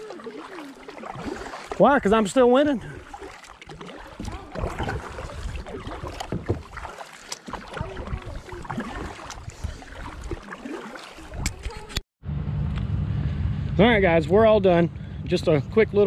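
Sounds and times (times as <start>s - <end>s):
water dripping: 0.0s - 11.8s
paddle splashing in water: 0.0s - 12.0s.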